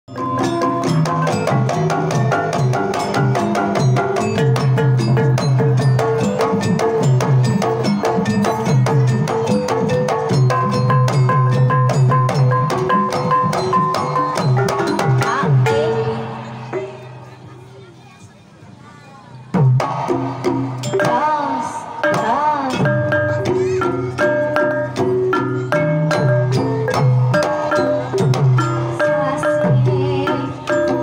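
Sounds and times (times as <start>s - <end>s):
hand drum: 0.1s - 17.5s, 19.6s - 31.0s.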